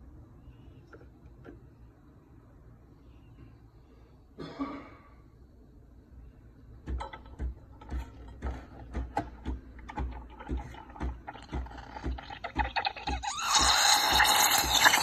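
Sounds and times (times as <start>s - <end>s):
steam wand steaming milk: 10.4s - 15.0s.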